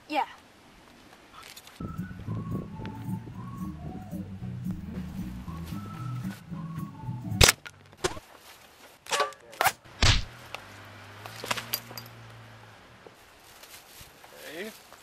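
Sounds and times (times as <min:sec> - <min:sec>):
low droning music: 0:01.9 - 0:07.8
sharp shot-like bangs: 0:09.6 - 0:10.3.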